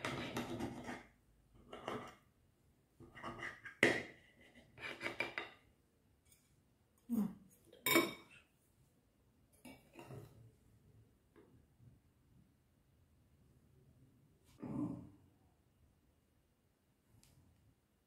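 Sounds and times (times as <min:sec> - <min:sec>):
metal utensils clinking on ceramic plate: 0:07.8 - 0:08.4.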